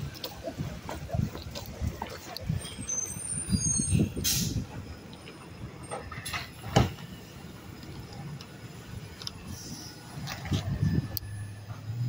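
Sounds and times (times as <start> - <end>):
truck diesel engine rumbling: 0.0 - 12.0
short hiss: 4.2 - 4.6.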